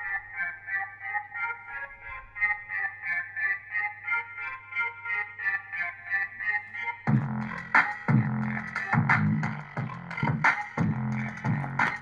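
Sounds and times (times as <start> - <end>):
keyboard melody through small speaker: 0.0 - 12.0
bass-heavy beat: 7.1 - 12.0.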